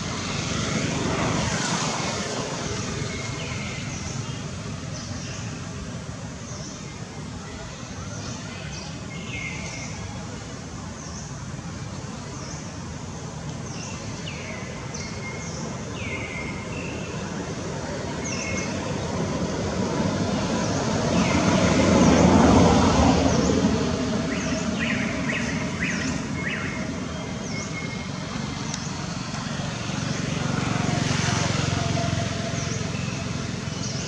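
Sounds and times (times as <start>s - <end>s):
road vehicle passing: 0.0s - 6.3s, 14.2s - 34.0s
birds chirping: 13.6s - 34.0s.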